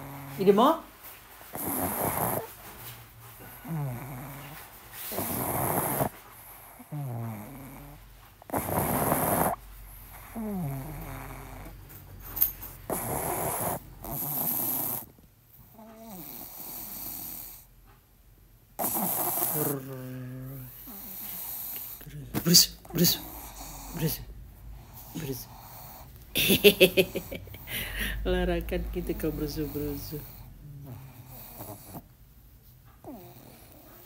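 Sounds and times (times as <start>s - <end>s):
loud snoring: 1.5s - 2.5s, 3.6s - 11.8s, 12.9s - 15.1s, 15.7s - 17.7s, 18.8s - 22.2s, 29.2s - 32.1s, 33.1s - 34.0s.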